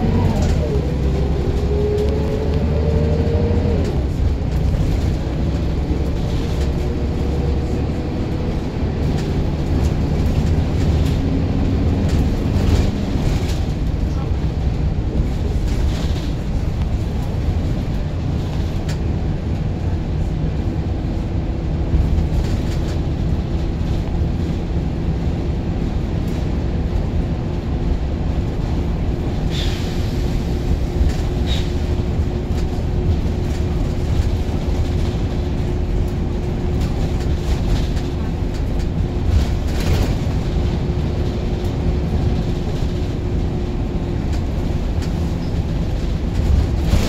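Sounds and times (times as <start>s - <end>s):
bus engine and road rumble: 0.0s - 47.0s.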